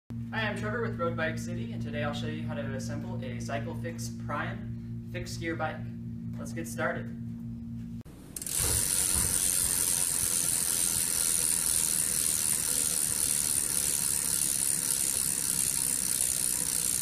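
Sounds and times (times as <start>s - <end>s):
bicycle freewheel ticking: 8.3s - 17.0s.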